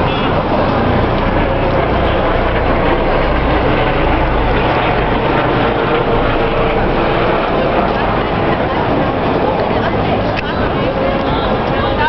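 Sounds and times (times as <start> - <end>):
busy city square ambience: 0.0 - 12.0
deep rumble: 0.0 - 12.0.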